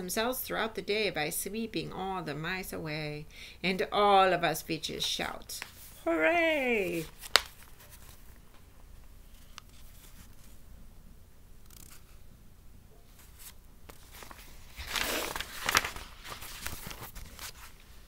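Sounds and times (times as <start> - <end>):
faint handling noise: 5.0 - 10.7
book pages rustling: 5.6 - 8.6, 9.2 - 10.6, 13.1 - 18.0.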